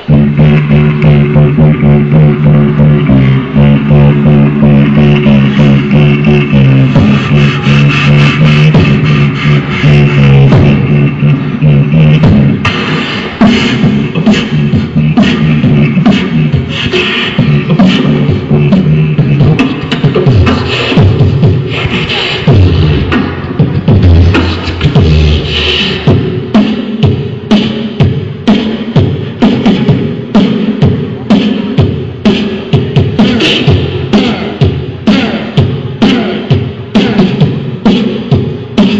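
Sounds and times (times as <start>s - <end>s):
hummed bass notes: 0.0s - 27.5s
beatboxing drum hits: 0.0s - 38.9s.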